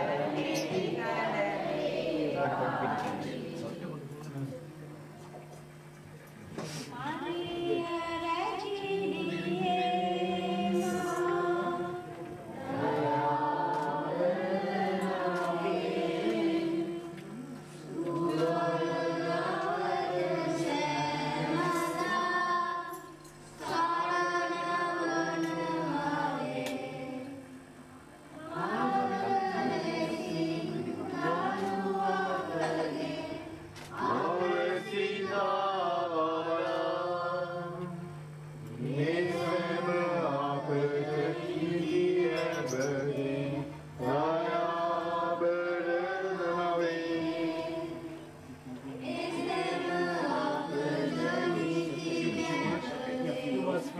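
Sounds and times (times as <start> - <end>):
group singing a hymn: 0.0 - 4.1, 6.6 - 53.9.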